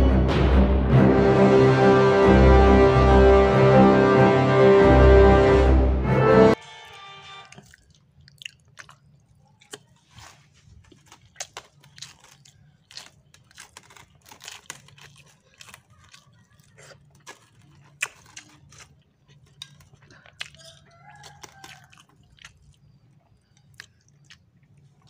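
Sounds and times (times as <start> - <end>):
person chewing and eating: 7.4 - 25.0.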